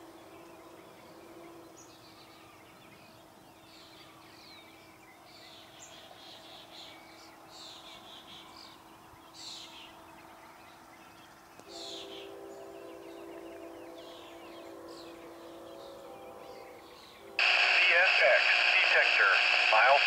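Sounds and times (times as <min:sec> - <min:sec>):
faint steady hum: 0:17.4 - 0:20.0.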